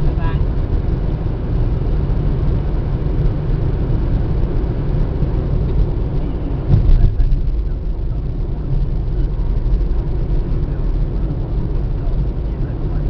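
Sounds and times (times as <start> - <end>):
car road and engine noise: 0.0 - 13.0
low thump: 6.7 - 7.5.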